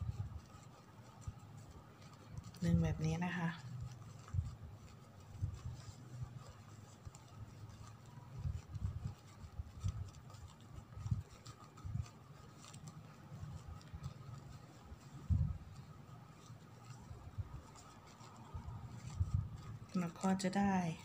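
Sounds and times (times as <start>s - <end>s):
paper rustling and crackling: 0.0s - 21.0s.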